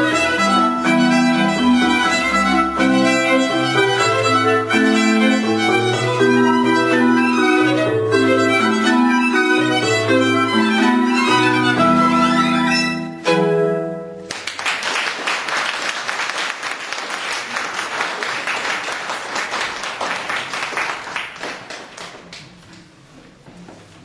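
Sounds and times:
violin playing: 0:00.0 - 0:14.2
audience applause: 0:14.2 - 0:22.6.

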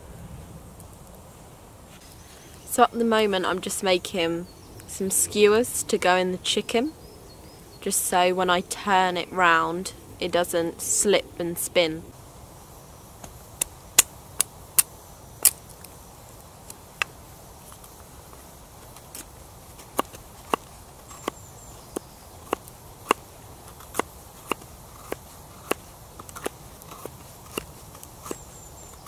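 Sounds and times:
knife whittling wood clicks: 0:20.0 - 0:29.0.

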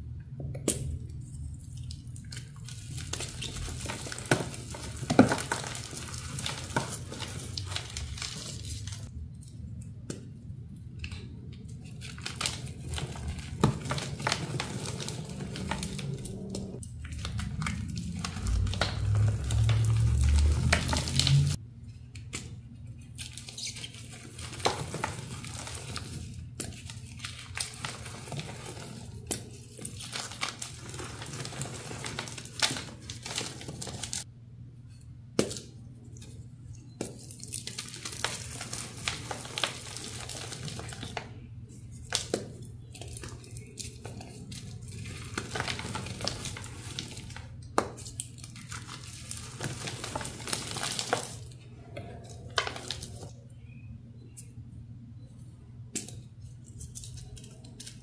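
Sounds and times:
hands crushing crunchy powder blocks: 0:01.9 - 0:09.1, 0:11.1 - 0:21.6, 0:22.2 - 0:34.3, 0:37.0 - 0:53.4.

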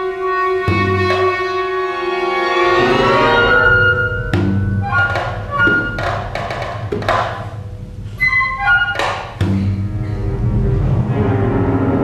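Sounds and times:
bowed strings sustained notes: 0:00.0 - 0:06.4
sharp drum strikes: 0:04.2 - 0:07.6.

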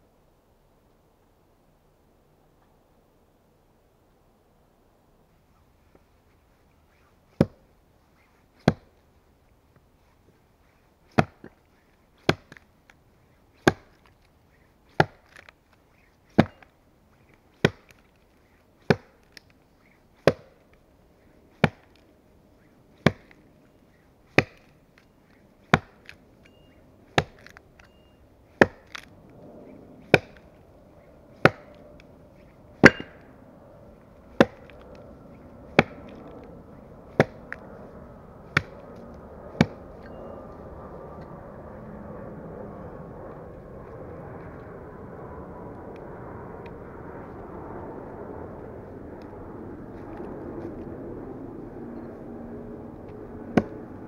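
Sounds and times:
axe chopping a log: 0:07.4 - 0:07.6, 0:08.6 - 0:08.9, 0:11.1 - 0:11.6, 0:12.2 - 0:12.6, 0:13.6 - 0:14.1, 0:14.9 - 0:15.5, 0:16.3 - 0:16.7, 0:17.5 - 0:18.0, 0:18.8 - 0:19.5, 0:20.2 - 0:20.6, 0:21.6 - 0:22.0, 0:23.0 - 0:23.4, 0:24.3 - 0:24.8, 0:25.7 - 0:26.2, 0:27.1 - 0:27.6, 0:28.5 - 0:29.1, 0:30.0 - 0:30.5, 0:31.4 - 0:31.8, 0:32.8 - 0:33.3, 0:34.3 - 0:34.8, 0:35.7 - 0:36.3, 0:37.1 - 0:37.6, 0:38.5 - 0:38.8, 0:39.6 - 0:39.8, 0:53.5 - 0:53.8.

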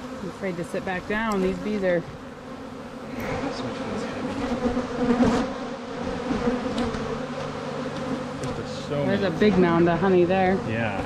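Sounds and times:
bees buzzing: 0:00.0 - 0:11.0
hive frame handling noise: 0:06.3 - 0:08.6.

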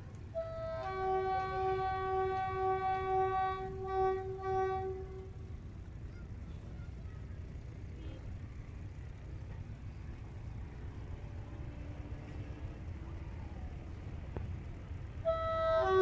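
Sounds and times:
low steady rumble: 0:00.0 - 0:16.0
diesel locomotive horn: 0:00.2 - 0:05.6, 0:11.2 - 0:13.9, 0:15.0 - 0:16.0.

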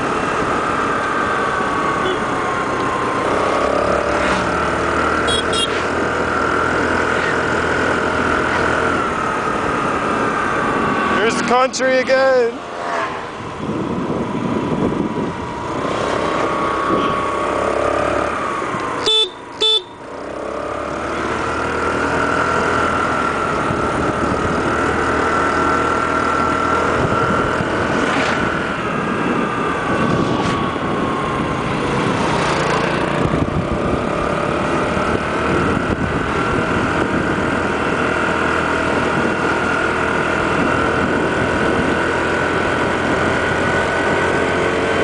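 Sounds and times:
scooter engine running: 0:00.0 - 0:11.8, 0:12.6 - 0:45.0
wind and road noise: 0:00.0 - 0:45.0
horn beeps: 0:02.0 - 0:02.3, 0:05.2 - 0:05.9, 0:19.0 - 0:20.0.

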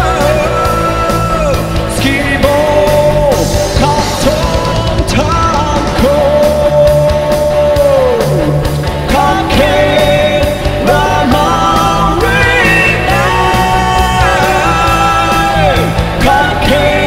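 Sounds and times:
bass: 0:00.0 - 0:17.0
drums steady beat: 0:00.0 - 0:17.0
guitar: 0:00.0 - 0:17.0
person singing sliding melody: 0:00.0 - 0:17.0.

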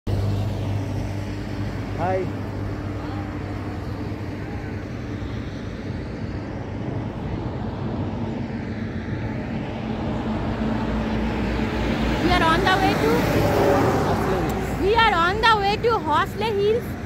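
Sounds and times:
motorbike engine hum: 0:00.1 - 0:17.0
wind on microphone: 0:02.8 - 0:14.9.

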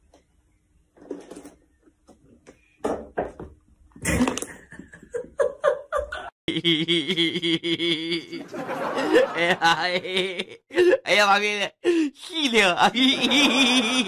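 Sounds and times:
person laughing: 0:04.0 - 0:11.1, 0:12.4 - 0:14.0.

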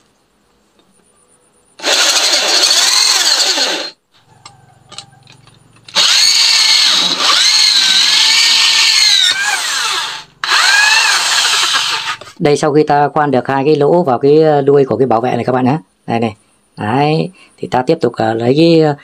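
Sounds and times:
electric drill boring into metal: 0:01.8 - 0:04.0, 0:04.9 - 0:12.3.

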